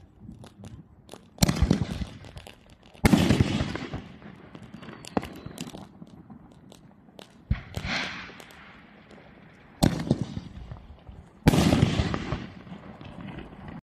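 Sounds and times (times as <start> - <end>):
firework bangs: 0.0 - 13.8
firework crackle: 0.0 - 13.8
firework launch thump and hiss: 7.5 - 8.7.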